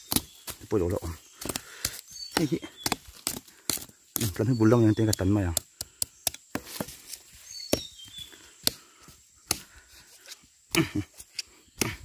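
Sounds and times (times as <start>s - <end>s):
knocks and snaps in dry leaves: 0.0s - 4.4s
small bird chirping: 0.0s - 12.0s.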